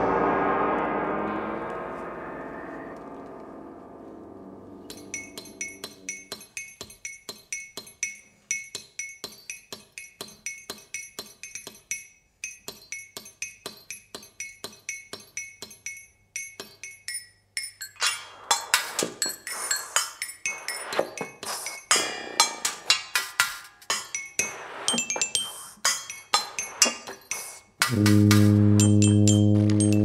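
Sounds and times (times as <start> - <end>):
percussion clinks with high ring: 4.8 - 23.0, 23.9 - 28.0, 28.8 - 30.0.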